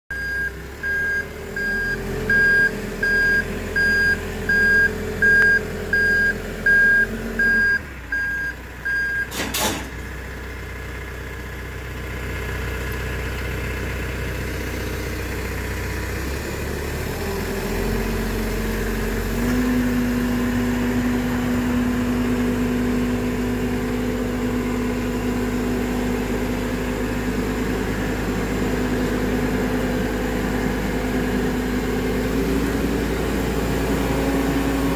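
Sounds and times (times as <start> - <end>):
backup alarm beeping: 0.1 - 9.4
diesel engine running: 0.1 - 34.9.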